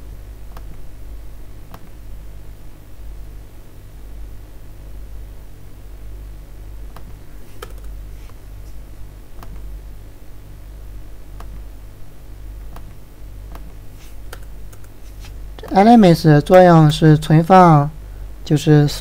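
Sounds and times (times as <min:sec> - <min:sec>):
low electrical hum: 0:00.0 - 0:19.0
keyboard and mouse clicks: 0:06.9 - 0:07.9, 0:09.4 - 0:09.7, 0:11.4 - 0:11.7, 0:12.7 - 0:15.8.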